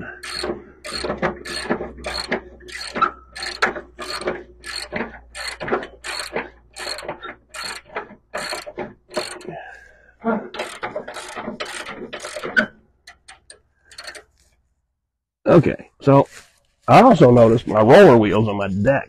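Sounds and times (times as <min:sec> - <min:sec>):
ratchet wrench clicking: 0:00.2 - 0:09.5, 0:10.6 - 0:14.3.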